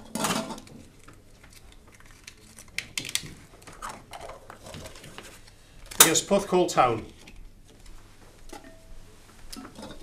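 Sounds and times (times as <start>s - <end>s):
plastic balls twisted open: 0.6s - 6.1s.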